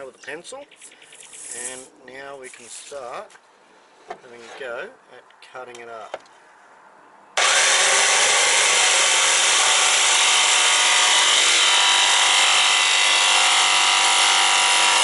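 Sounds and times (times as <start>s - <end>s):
electric jigsaw cutting fibreglass: 7.4s - 15.0s.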